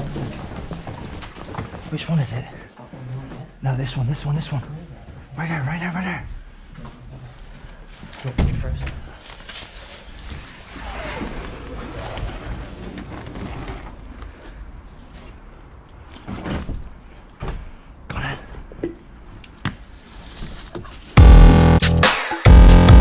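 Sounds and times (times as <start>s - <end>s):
rustling and scraping: 6.6s - 17.8s, 19.9s - 21.2s
electronic music with heavy beat: 21.2s - 23.0s.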